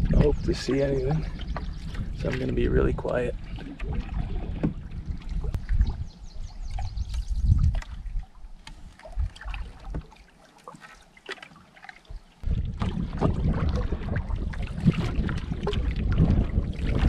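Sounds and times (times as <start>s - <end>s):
wind rumble on microphone: 0.0s - 10.1s, 12.4s - 17.0s
paddle splashing water: 0.0s - 17.0s
water lapping at hull: 0.0s - 17.0s.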